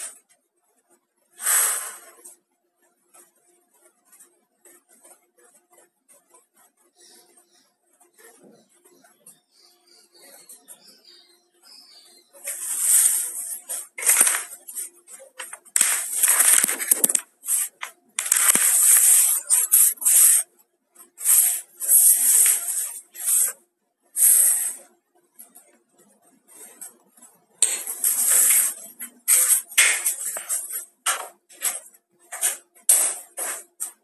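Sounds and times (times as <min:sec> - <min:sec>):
phone handling rustling and scraping: 0:15.4 - 0:19.7.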